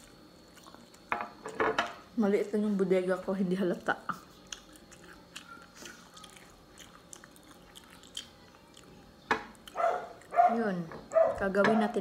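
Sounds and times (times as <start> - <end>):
person chewing: 0.0 - 1.5, 4.1 - 10.4.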